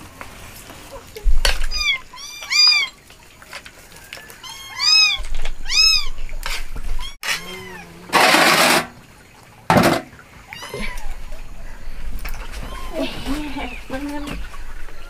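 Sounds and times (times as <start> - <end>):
cat meowing: 1.6 - 3.0, 4.4 - 6.2, 7.0 - 8.1.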